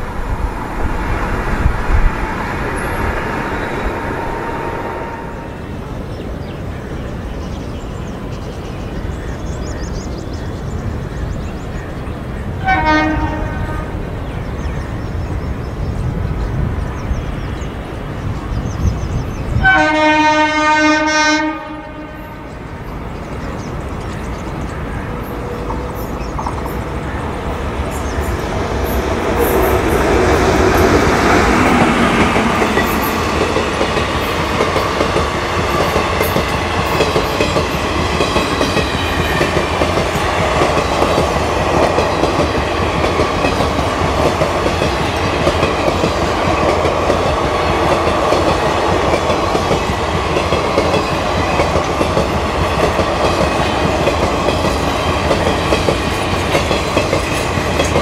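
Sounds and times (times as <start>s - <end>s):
electric locomotive whine: 0.0s - 58.0s
train coaches rumbling past: 0.0s - 58.0s
wheels clacking over rail joints: 23.6s - 58.0s.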